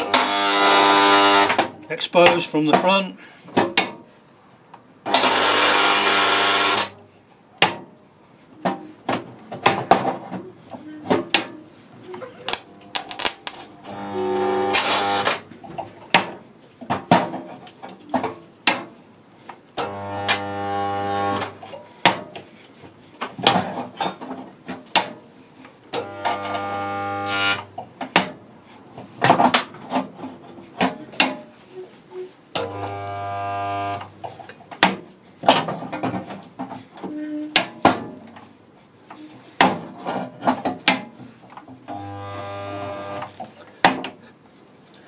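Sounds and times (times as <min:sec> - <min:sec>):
spot welder electrical buzz: 0:00.0 - 0:01.6, 0:05.1 - 0:06.9, 0:12.5 - 0:15.4, 0:19.8 - 0:21.6, 0:25.9 - 0:27.7, 0:32.6 - 0:34.2, 0:41.9 - 0:43.4.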